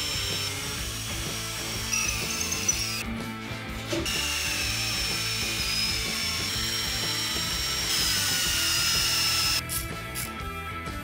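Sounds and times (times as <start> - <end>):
cordless drill whining into wood: 0.0 - 3.0, 4.0 - 9.6.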